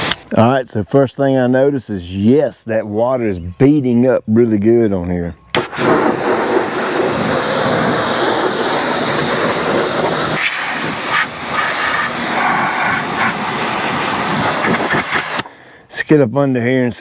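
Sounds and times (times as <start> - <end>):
hose spray hissing: 5.6 - 15.6.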